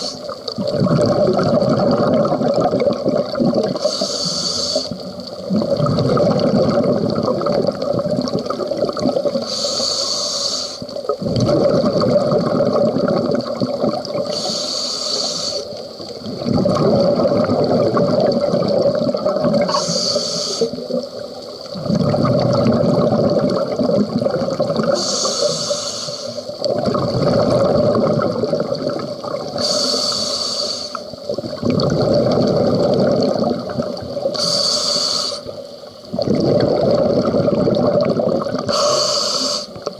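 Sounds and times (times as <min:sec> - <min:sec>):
bubbling exhaust underwater: 0:00.0 - 0:39.9
scuba regulator breathing: 0:03.7 - 0:05.0, 0:09.4 - 0:11.0, 0:14.2 - 0:15.8, 0:19.6 - 0:21.0, 0:24.8 - 0:26.6, 0:29.5 - 0:31.1, 0:34.2 - 0:35.6, 0:38.6 - 0:39.9.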